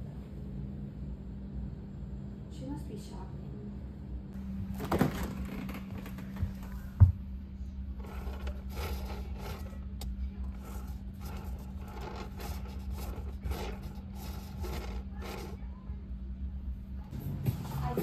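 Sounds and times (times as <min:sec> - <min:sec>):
refrigerator humming: 0:00.0 - 0:18.0
scraping and rustling of items: 0:07.9 - 0:15.8.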